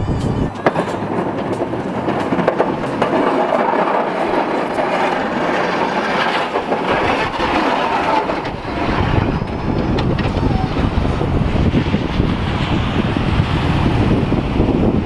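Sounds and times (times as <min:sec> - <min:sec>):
truck engine running: 0:00.0 - 0:15.0
snow plow blade scraping pavement: 0:00.2 - 0:15.0
clicks and knocks: 0:00.5 - 0:10.4.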